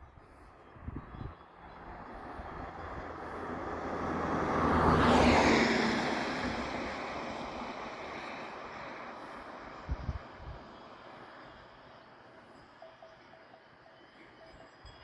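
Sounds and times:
vehicle passing by: 1.5s - 10.3s.

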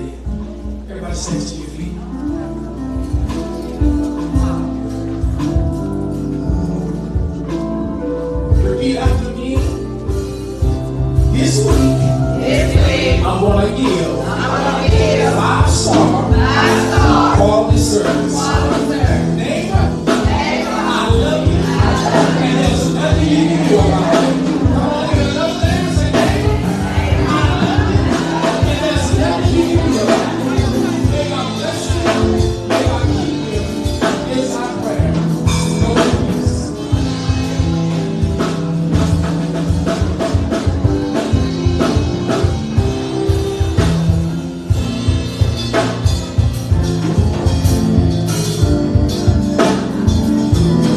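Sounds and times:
keyboard chords: 0.0s - 50.9s
steady drum beat: 1.2s - 50.9s
person singing: 11.3s - 36.7s.

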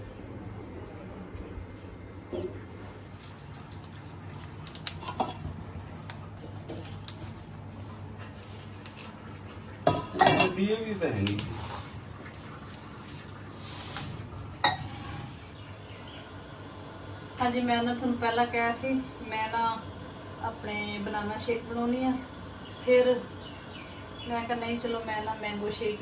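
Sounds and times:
metal bowl and utensils clinking: 4.6s - 7.4s, 8.9s - 11.8s, 14.6s - 15.4s
woman's voice: 17.4s - 23.4s, 24.2s - 26.0s.

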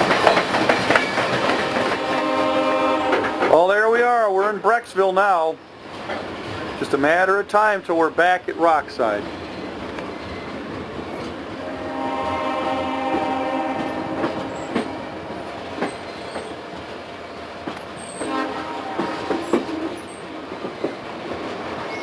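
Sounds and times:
train wheels rumbling and clicking: 0.0s - 22.0s
train horn blasts: 1.6s - 3.6s, 11.6s - 15.2s, 18.2s - 20.0s.

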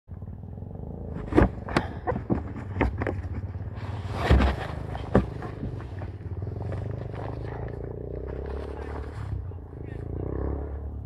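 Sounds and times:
idling engine hum: 0.1s - 11.0s
knocks and rubbing on boat hull: 1.2s - 6.2s.

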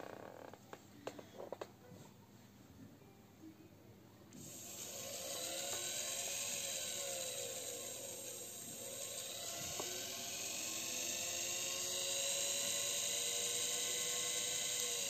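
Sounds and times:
electric motor whine: 4.4s - 15.0s.

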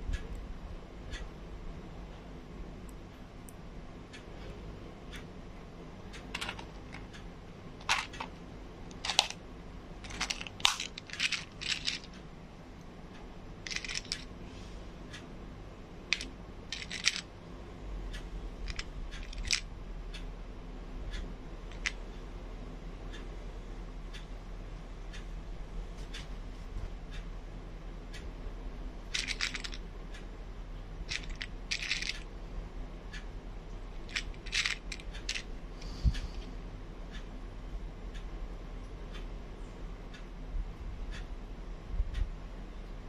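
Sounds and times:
plastic pushpins rattling: 6.4s - 7.1s, 7.8s - 8.3s, 8.9s - 9.4s, 10.0s - 12.1s, 13.7s - 14.3s, 16.1s - 17.2s, 18.7s - 19.6s, 29.1s - 29.8s, 31.1s - 32.2s, 34.1s - 35.4s
plastic tweezers clicking on pushpins: 10.0s - 12.1s, 13.7s - 14.3s, 16.1s - 17.3s, 18.6s - 19.7s, 21.7s - 22.0s, 29.2s - 29.8s, 31.1s - 32.3s, 34.1s - 35.5s.

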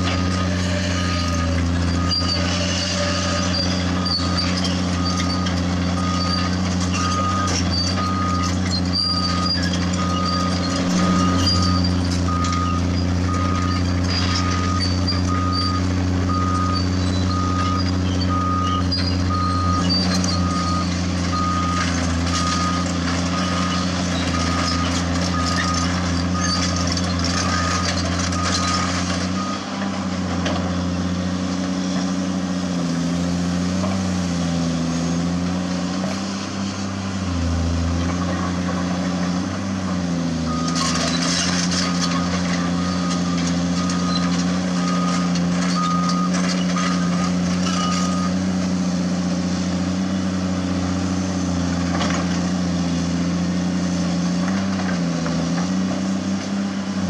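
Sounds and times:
excavator diesel engine: 0.0s - 57.0s
warning alarm beeping: 5.0s - 26.6s.

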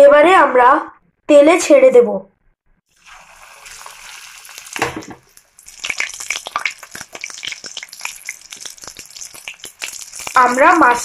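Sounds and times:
crackling and popping batter: 2.8s - 11.0s
fish frying in oil: 2.9s - 11.0s.

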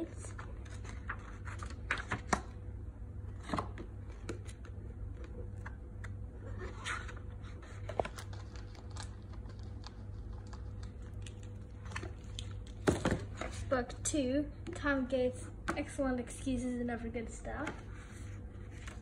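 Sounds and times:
book pages turning: 0.0s - 2.5s, 3.3s - 13.7s, 17.6s - 19.0s
steady low hum: 0.0s - 19.0s
paper rustling: 0.2s - 2.4s, 6.4s - 13.6s.

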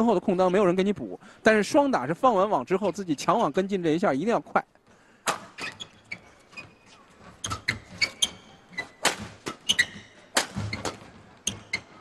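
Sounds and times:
racket hitting shuttlecock: 5.2s - 5.8s, 7.4s - 11.6s
shoes squeaking on court: 5.4s - 12.0s.

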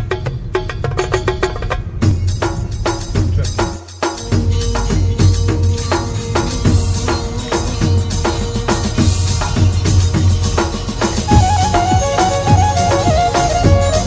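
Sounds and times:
quick percussion strikes: 0.0s - 14.0s
pulsing bass beat: 11.3s - 14.0s.

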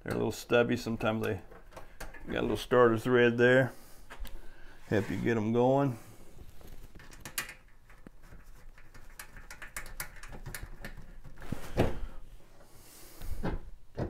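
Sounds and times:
metal clicks taps and scrapes: 0.1s - 2.3s, 6.9s - 11.4s.

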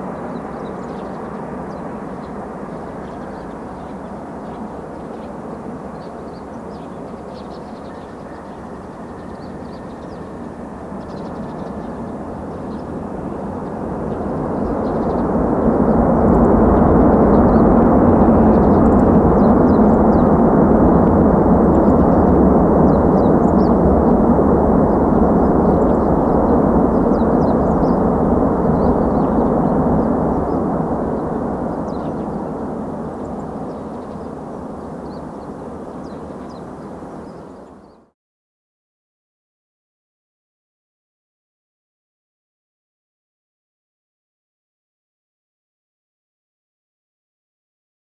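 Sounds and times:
jet engines in reverse thrust: 0.0s - 38.0s.

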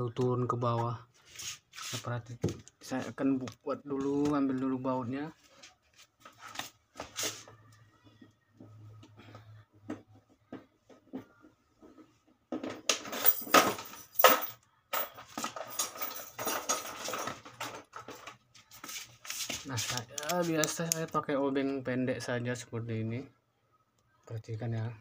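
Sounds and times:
metal tools and screws clattering: 12.8s - 18.3s.

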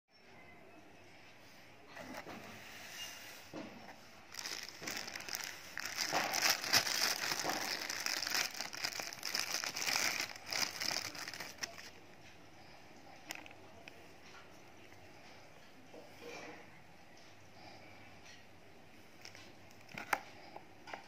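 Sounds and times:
plastic packaging crinkling: 4.3s - 12.0s.

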